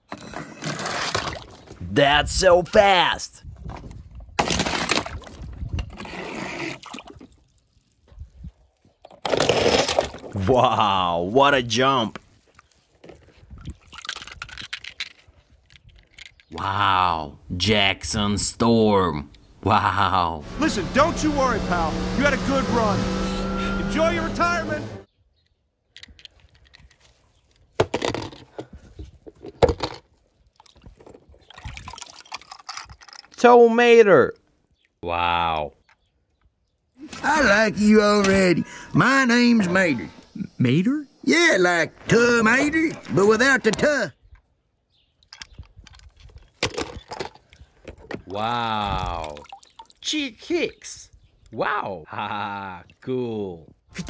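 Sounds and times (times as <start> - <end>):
water splashing in a plastic tub: 4.4 - 8.0, 30.5 - 32.7, 49.0 - 50.2
water splashing in plastic tub: 30.6 - 32.5, 49.0 - 50.1.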